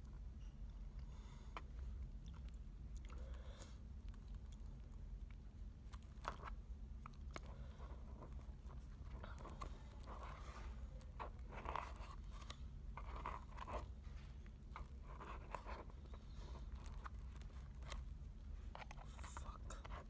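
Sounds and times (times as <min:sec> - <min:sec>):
steady low hum: 0:00.0 - 0:20.0
person chewing: 0:00.1 - 0:10.1.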